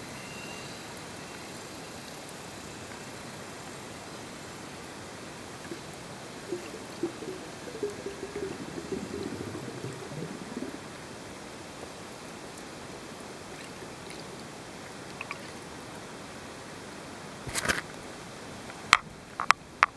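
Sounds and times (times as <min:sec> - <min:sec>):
underwater hiss: 0:05.6 - 0:11.7.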